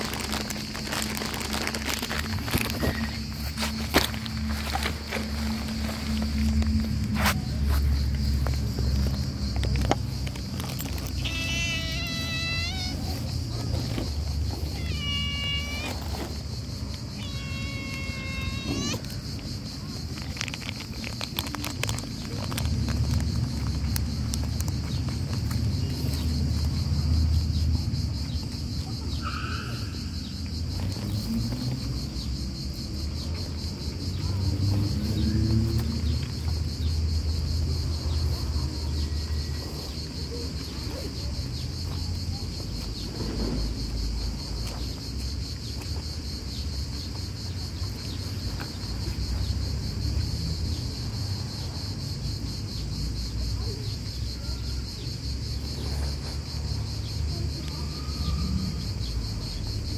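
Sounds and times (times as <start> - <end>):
insects chirring: 0.0 - 59.9
cat chewing and lapping food: 19.8 - 26.1.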